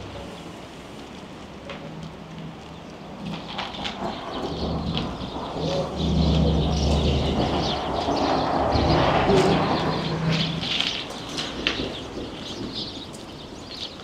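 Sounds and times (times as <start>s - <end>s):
birds chirping: 0.0s - 14.0s
vehicle rumbling past: 0.0s - 14.0s.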